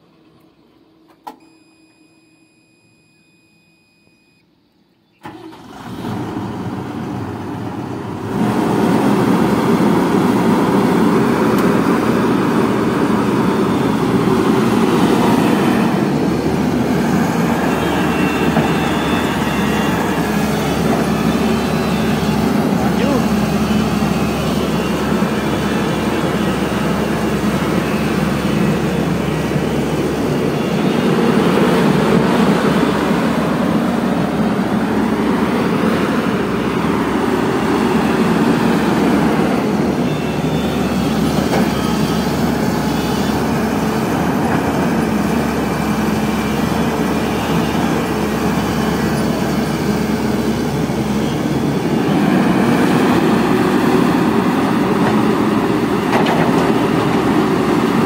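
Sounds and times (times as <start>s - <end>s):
excavator diesel engine running: 5.2s - 58.0s.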